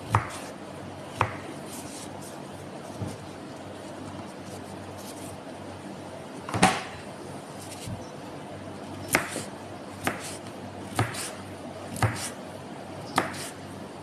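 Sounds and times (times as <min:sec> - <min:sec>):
knife slicing potato: 0:00.1 - 0:00.6, 0:01.2 - 0:02.3, 0:09.1 - 0:12.4, 0:13.1 - 0:13.6.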